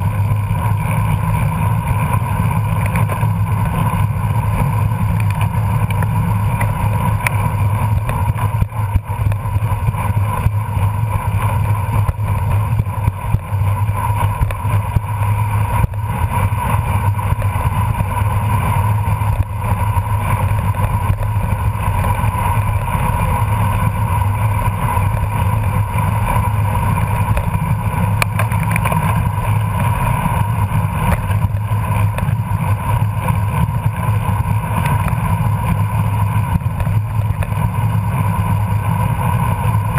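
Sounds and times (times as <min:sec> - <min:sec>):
bicycle tyres on pavement: 0:00.0 - 0:39.9.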